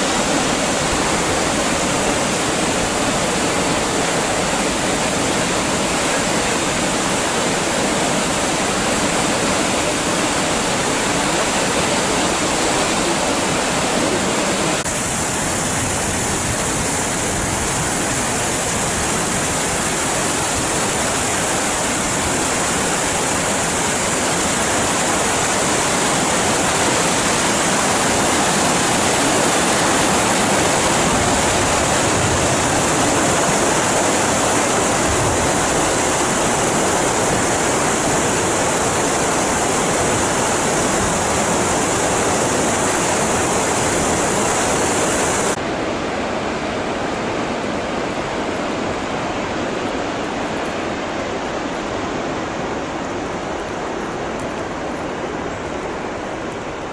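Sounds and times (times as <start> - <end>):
waterfall and river rushing: 0.0 - 56.9.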